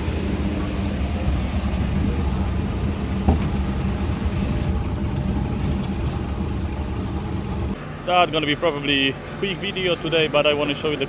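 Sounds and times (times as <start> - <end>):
diesel engine idling: 0.0 - 7.8.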